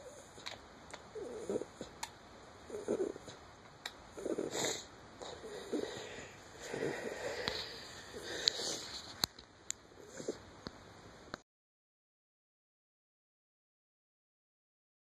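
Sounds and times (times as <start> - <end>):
breathy sniffles: 4.2 - 9.2.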